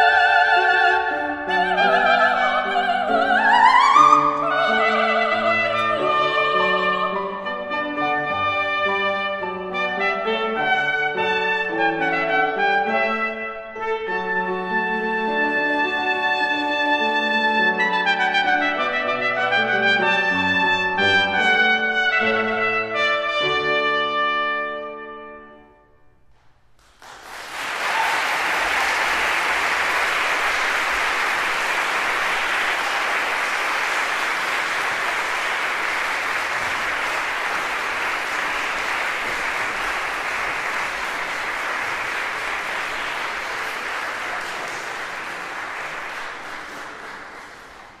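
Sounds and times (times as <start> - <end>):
trumpet note: 4.2 - 26.0
audience applauding: 26.8 - 48.0.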